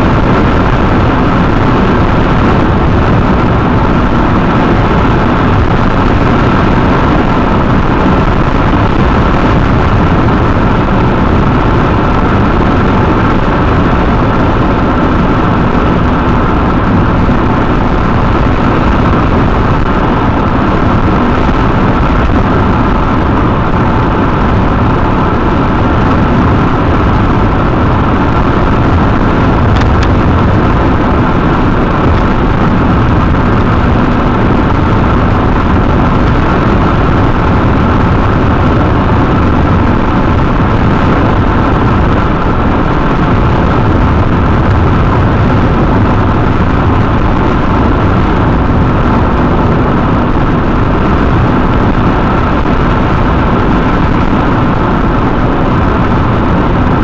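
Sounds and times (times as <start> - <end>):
car interior road noise at speed: 0.0 - 57.0.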